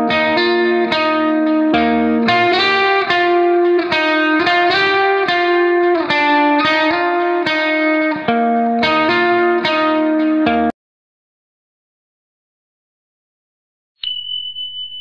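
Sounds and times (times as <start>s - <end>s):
guitar plucking notes and chords: 0.0s - 10.8s.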